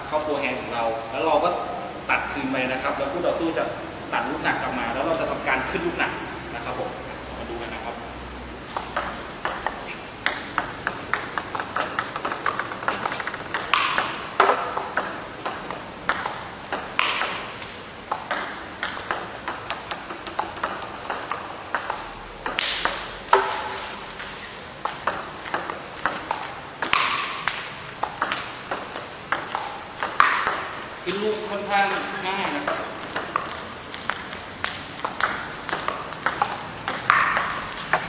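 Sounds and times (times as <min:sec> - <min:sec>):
table tennis balls clicking: 0:08.6 - 0:38.0.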